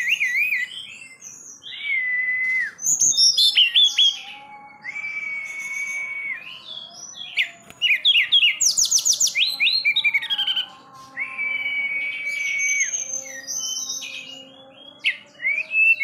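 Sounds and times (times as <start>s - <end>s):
bird singing: 0.0s - 16.0s.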